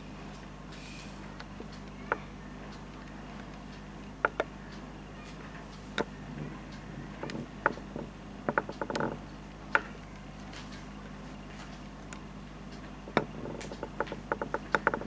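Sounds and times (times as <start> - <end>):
steady low hum: 0.0 - 15.0
sharp clicks and taps: 1.4 - 4.5.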